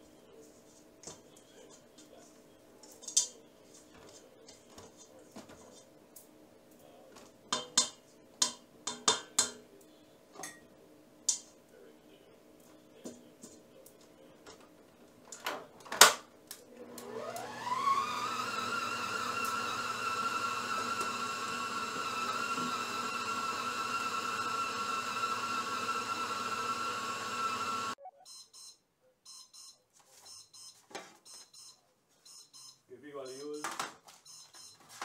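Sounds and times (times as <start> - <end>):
stand mixer motor whine: 16.8 - 28.0.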